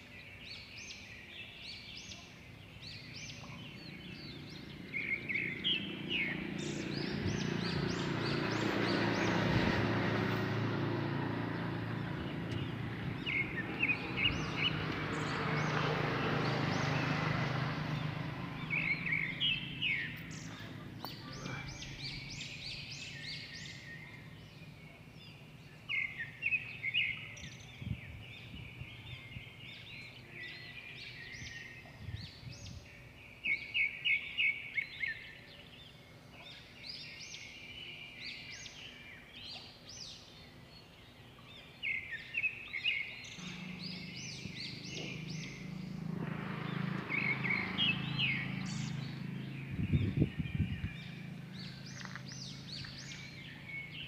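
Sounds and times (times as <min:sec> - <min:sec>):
small birds chirping: 0:00.0 - 0:54.0
rushing noise with low hum: 0:43.3 - 0:54.0.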